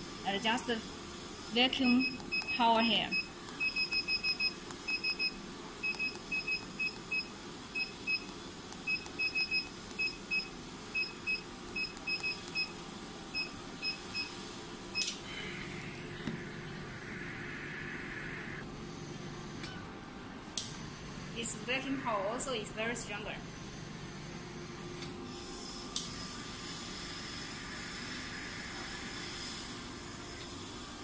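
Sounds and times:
vacuum hiss: 0.0 - 1.9, 12.8 - 19.8, 20.5 - 31.0.

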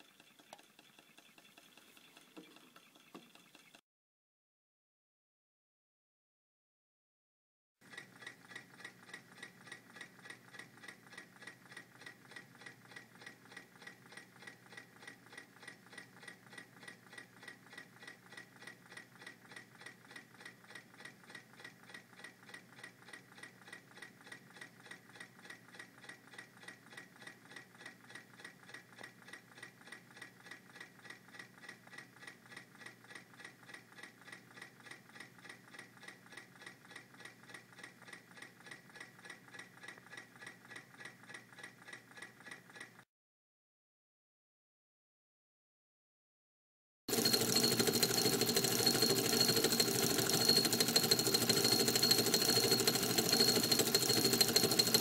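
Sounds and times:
stirling engine ticking: 47.1 - 55.0.

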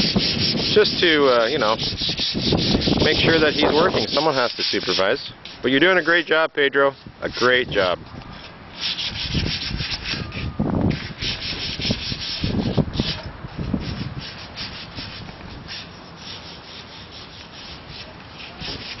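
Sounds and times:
hand sanding metal: 0.0 - 19.0.

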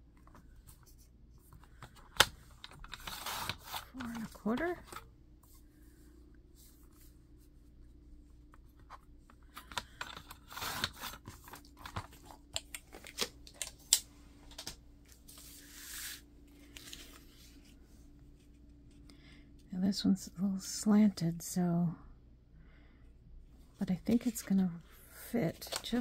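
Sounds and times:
faint steady hum: 0.0 - 26.0
paper rustling: 14.5 - 18.7, 25.5 - 26.0.

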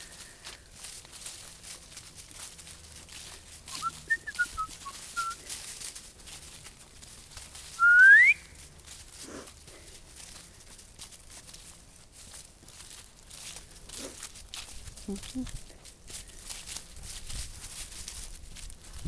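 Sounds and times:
footsteps in dry leaves: 0.0 - 19.0
person whistling: 3.7 - 5.4, 7.8 - 8.5.

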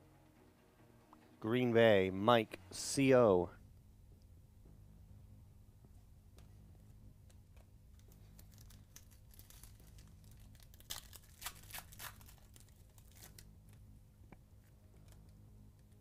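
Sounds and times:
foil pack tearing and crinkling: 8.3 - 13.5.

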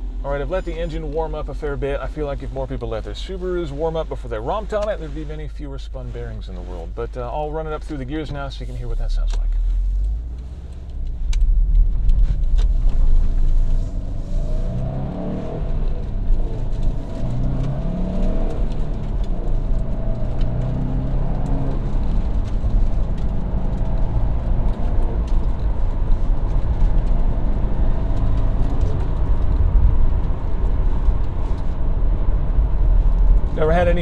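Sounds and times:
low road rumble: 0.0 - 34.0
car engine accelerating through gears: 7.9 - 34.0.

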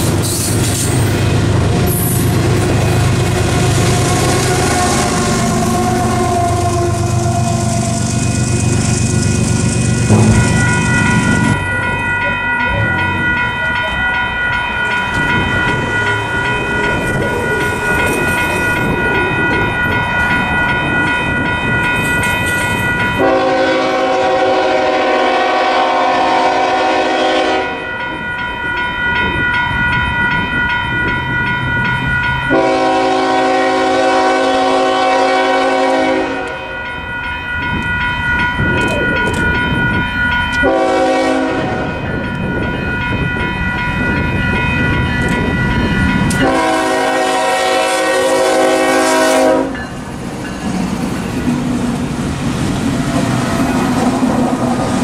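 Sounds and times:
high ringing: 2.1 - 23.5
locomotive air horn blasts: 3.3 - 8.3, 23.2 - 27.8, 32.5 - 36.6, 40.6 - 42.0, 46.4 - 49.8.

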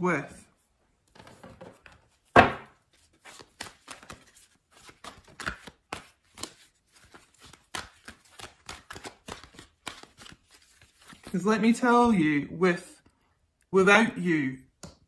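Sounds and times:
thump on table: 2.3 - 2.7
cards snapping and tapping: 3.3 - 10.6.

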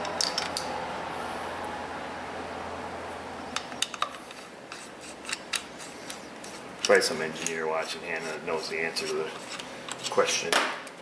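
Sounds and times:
metal tools clinking: 0.0 - 0.8, 6.8 - 10.9.

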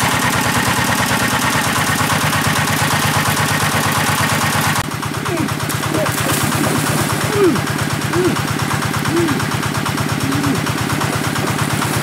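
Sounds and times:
water pump engine running: 0.0 - 12.0
low steady hum: 5.0 - 9.6.

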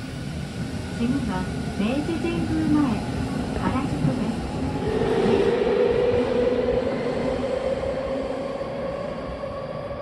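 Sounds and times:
rail rumble: 0.0 - 10.0.

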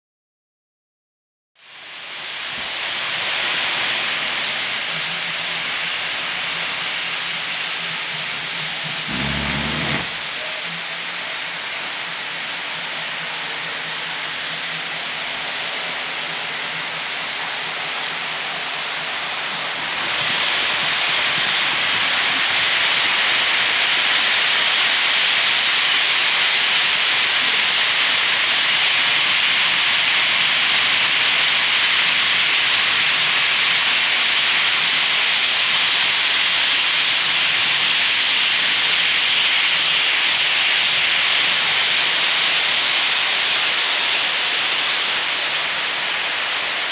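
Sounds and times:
model train wheels on rails: 1.6 - 46.9.

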